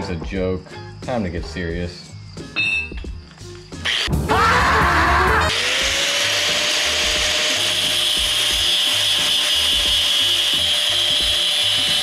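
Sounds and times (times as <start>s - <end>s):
angle grinder grinding steel: 3.8s - 4.2s, 5.4s - 12.0s.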